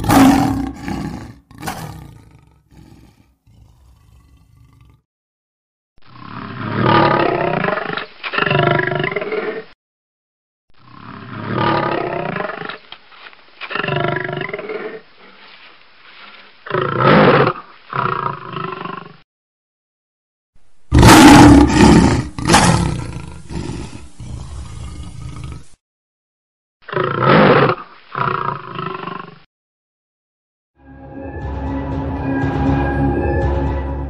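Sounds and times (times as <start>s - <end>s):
lion roaring: 0.0s - 5.0s, 20.9s - 25.8s.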